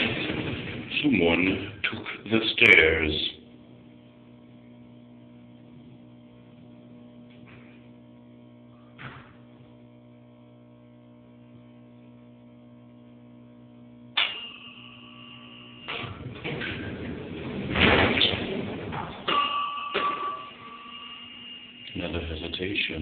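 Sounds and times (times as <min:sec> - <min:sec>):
elevator electrical hum: 0:00.0 - 0:23.0
elevator arrival tone: 0:14.2 - 0:17.7, 0:18.6 - 0:23.0.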